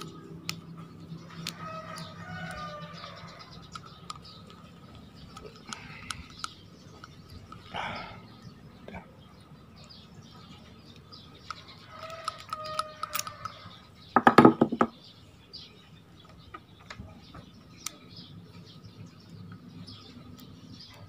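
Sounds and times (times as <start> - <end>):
faint birds chirping: 0.0 - 21.0
small metal clicks and taps: 3.6 - 7.7, 10.9 - 13.7.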